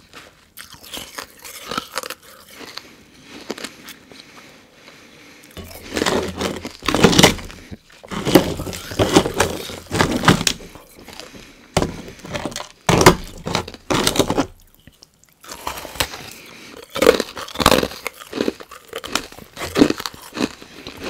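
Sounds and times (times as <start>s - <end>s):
ice chunks knocking and cracking: 5.6s - 21.0s.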